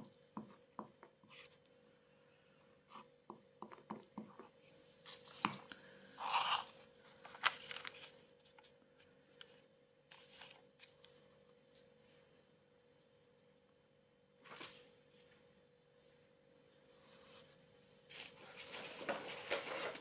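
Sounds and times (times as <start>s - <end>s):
faint steady hum: 0.0s - 20.0s
paper rustle: 6.2s - 11.9s, 17.2s - 20.0s.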